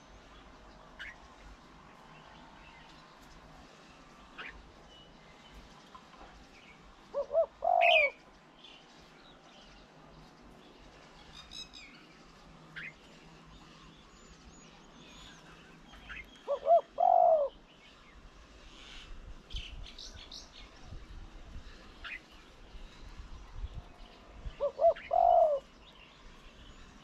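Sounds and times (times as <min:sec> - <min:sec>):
small birds chirping: 0:00.0 - 0:27.0
dove cooing: 0:07.1 - 0:08.2, 0:16.4 - 0:17.6, 0:24.6 - 0:25.7.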